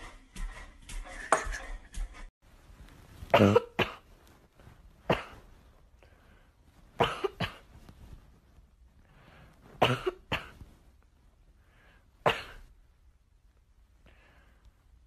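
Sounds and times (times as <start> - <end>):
short sharp coughs: 5.0 - 5.6.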